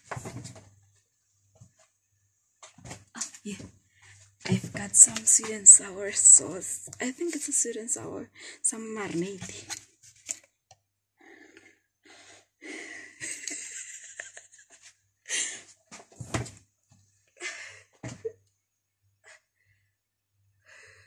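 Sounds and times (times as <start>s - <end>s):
woman giggling and breathing: 12.6s - 15.8s, 17.4s - 18.4s.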